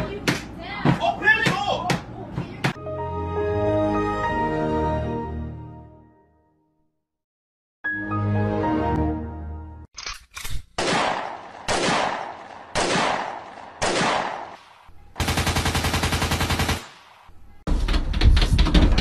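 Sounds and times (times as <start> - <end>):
gunshots with echo: 10.8 - 17.3
machine-gun fire: 10.8 - 17.3.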